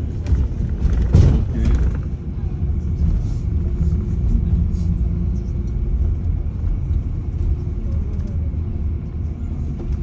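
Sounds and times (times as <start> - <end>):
bus engine and road noise: 0.0 - 10.0.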